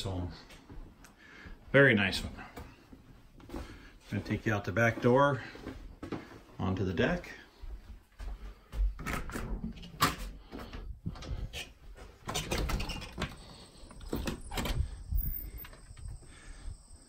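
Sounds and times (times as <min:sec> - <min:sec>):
footsteps on wooden deck: 0:00.0 - 0:14.4
door opening: 0:09.0 - 0:16.2.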